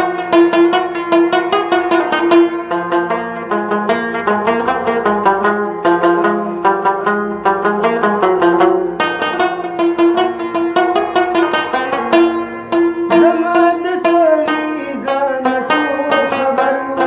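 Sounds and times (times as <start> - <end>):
rubab plucked notes: 0.0 - 17.0.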